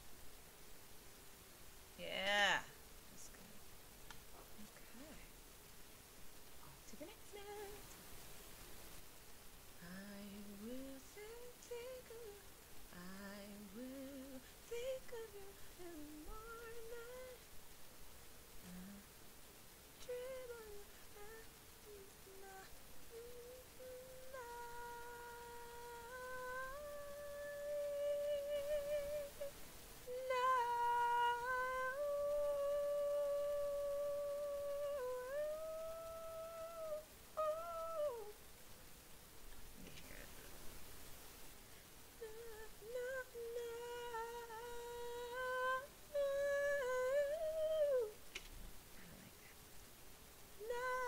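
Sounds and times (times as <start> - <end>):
woman humming: 2.0 - 3.6, 4.4 - 5.3, 6.6 - 7.9, 9.8 - 17.4, 18.6 - 19.1, 20.0 - 38.4, 42.2 - 48.2, 50.6 - 51.0
woman singing long held notes: 4.4 - 5.3, 6.7 - 8.0, 9.8 - 17.6, 18.6 - 19.2, 19.9 - 38.4, 42.2 - 48.3, 50.6 - 51.0.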